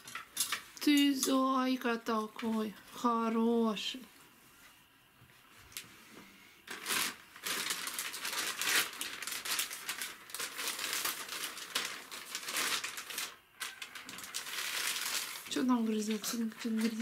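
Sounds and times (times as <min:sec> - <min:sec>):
dog tearing paper napkin: 0:06.7 - 0:15.5.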